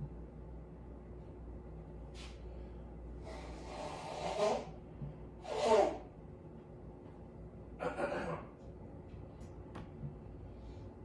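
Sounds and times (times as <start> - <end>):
person blowing nose: 3.2 - 4.8, 5.4 - 6.1.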